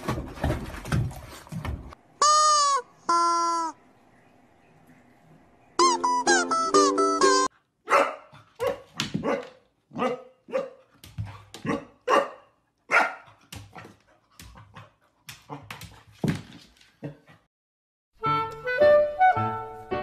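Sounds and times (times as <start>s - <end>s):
puppy barking: 7.9s - 10.8s, 11.6s - 13.3s.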